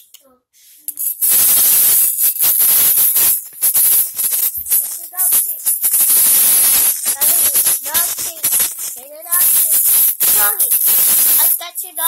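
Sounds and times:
maraca rattling: 0.8 - 12.0.

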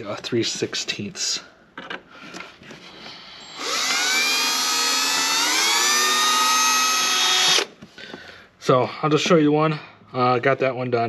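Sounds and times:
electric drill boring a hole: 3.4 - 7.7.

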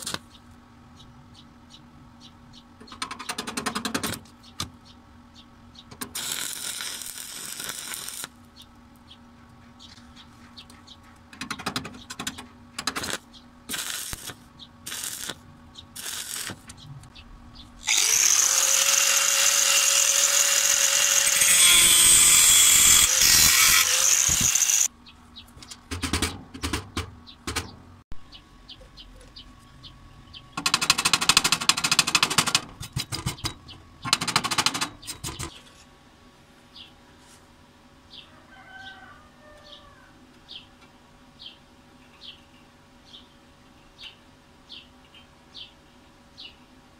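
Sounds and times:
welding arc crackling: 6.0 - 8.4, 12.8 - 16.7, 17.8 - 24.9
wire brush scrubbing metal: 16.0 - 16.7, 17.8 - 24.9
angle grinder grinding metal: 17.8 - 24.9.

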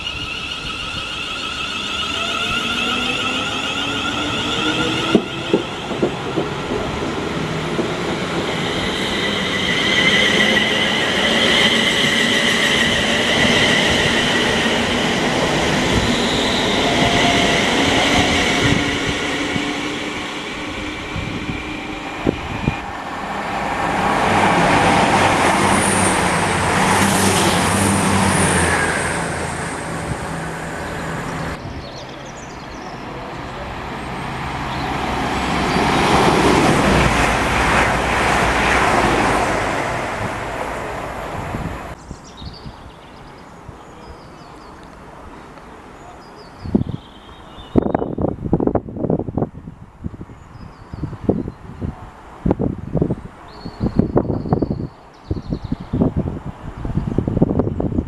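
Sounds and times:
electric train motor whine: 0.0 - 5.7.

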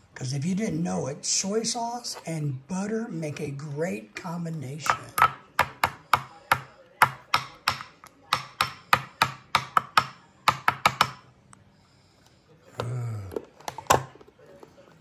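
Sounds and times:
person speaking: 0.0 - 7.7
utensil tapping: 4.8 - 11.2.

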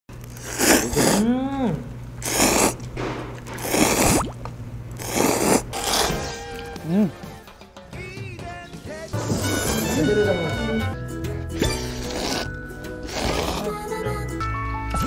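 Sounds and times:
noodles being slurped: 0.2 - 1.3, 2.2 - 6.3, 11.6 - 14.0.

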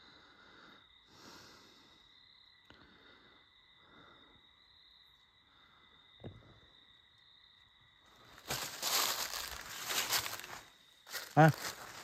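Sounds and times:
night insects droning: 0.0 - 12.0
footsteps crunching dry leaves: 8.2 - 12.0.

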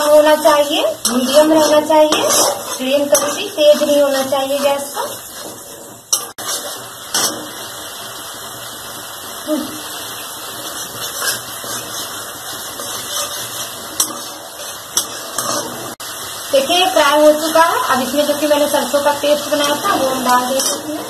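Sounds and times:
steel spatula scraping pan: 0.0 - 7.6, 10.5 - 16.0, 18.9 - 21.0
paste sizzling in hot oil: 0.0 - 21.0.

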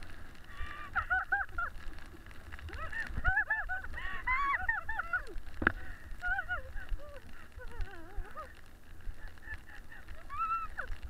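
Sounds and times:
toboggan sliding on packed snow: 0.0 - 10.9
high-pitched voice laughing: 2.8 - 5.4, 6.2 - 8.5, 9.4 - 11.0.

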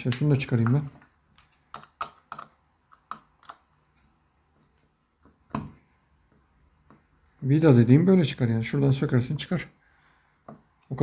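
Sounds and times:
small plastic parts clicking: 0.0 - 3.7.

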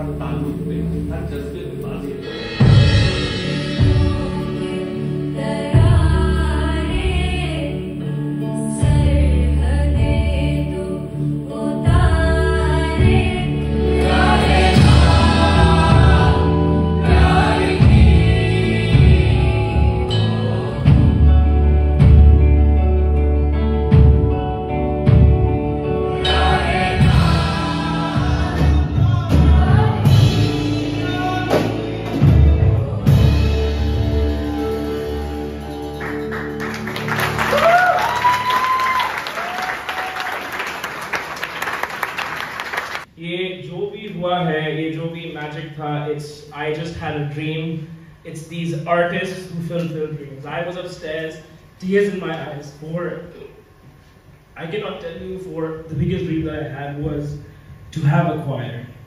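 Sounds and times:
instrumental accompaniment: 0.0 - 9.3, 11.8 - 37.9
choir singing: 2.2 - 6.8, 12.7 - 22.0, 25.7 - 36.6.

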